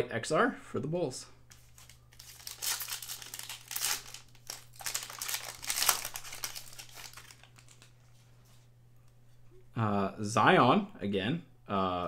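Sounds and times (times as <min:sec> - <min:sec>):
foil wrapper crinkling: 0:01.5 - 0:08.2.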